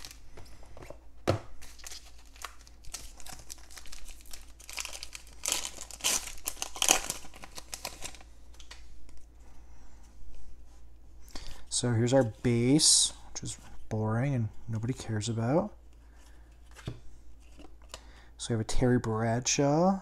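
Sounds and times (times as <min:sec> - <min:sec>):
foil pack tearing and crinkling: 0:00.0 - 0:00.2, 0:01.6 - 0:08.2.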